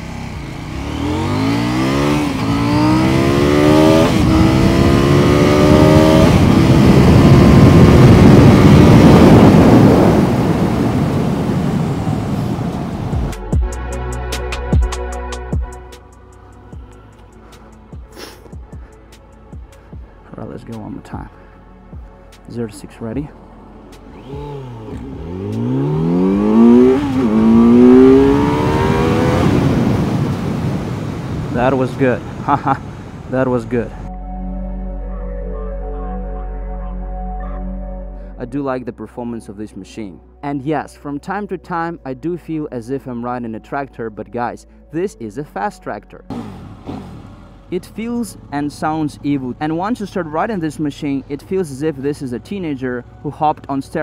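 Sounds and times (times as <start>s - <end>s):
motorcycle engine accelerating: 0.0s - 13.6s, 23.4s - 33.0s, 46.3s - 54.0s
wind rush: 3.8s - 13.4s, 25.5s - 33.3s.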